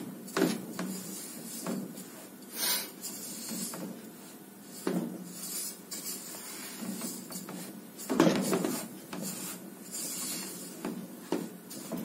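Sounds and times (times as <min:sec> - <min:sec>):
spatula scraping a metal pot: 0:04.6 - 0:10.7.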